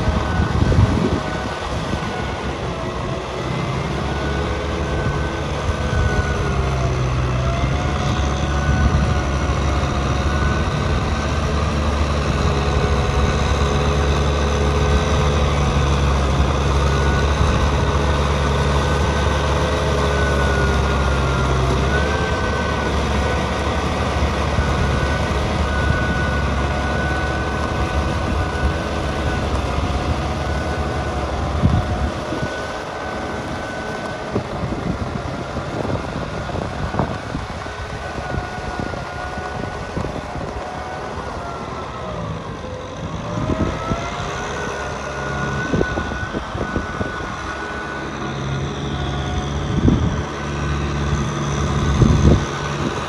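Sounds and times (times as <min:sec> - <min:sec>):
tractor diesel engine running: 0:00.0 - 0:53.0
wavering whine: 0:24.6 - 0:50.4.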